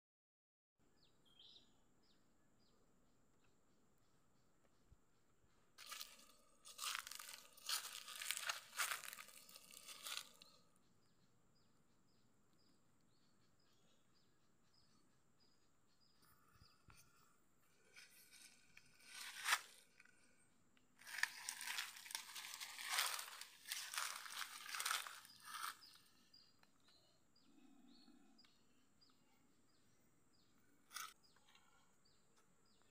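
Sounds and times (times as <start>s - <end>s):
footsteps crunching through dry leaves: 5.8s - 10.4s, 17.9s - 19.8s, 21.0s - 26.0s.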